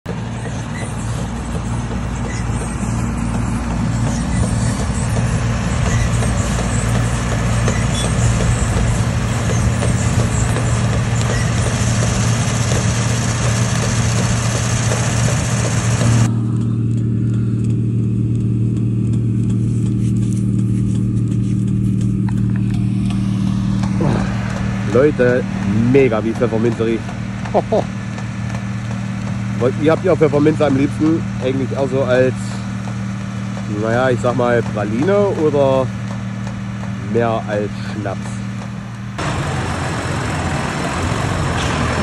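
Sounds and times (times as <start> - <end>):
low engine hum: 0.1 - 42.0
loud rushing noise: 22.6 - 29.9, 39.2 - 42.0.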